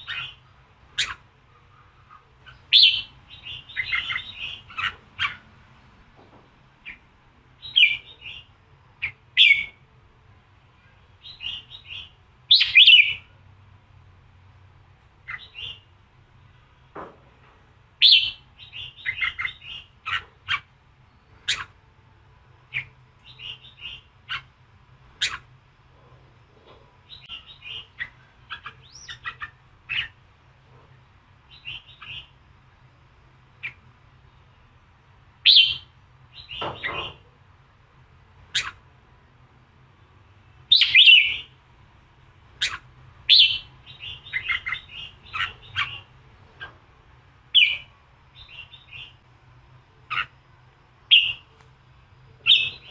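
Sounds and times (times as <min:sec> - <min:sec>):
bird chirping: 0:00.0 - 0:05.7, 0:06.8 - 0:09.9, 0:10.8 - 0:13.4, 0:15.2 - 0:16.8, 0:18.0 - 0:21.8, 0:22.7 - 0:25.5, 0:27.0 - 0:30.2, 0:31.4 - 0:32.4, 0:33.5 - 0:34.7, 0:35.4 - 0:37.3, 0:38.4 - 0:38.8, 0:40.6 - 0:41.6, 0:42.5 - 0:46.8, 0:47.5 - 0:49.3, 0:50.0 - 0:50.4, 0:51.0 - 0:51.6, 0:52.2 - 0:52.9.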